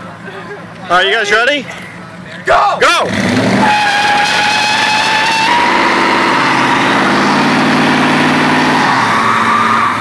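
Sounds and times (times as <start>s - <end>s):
truck engines revving: 0.0s - 10.0s
tires squealing on pavement: 3.0s - 10.0s.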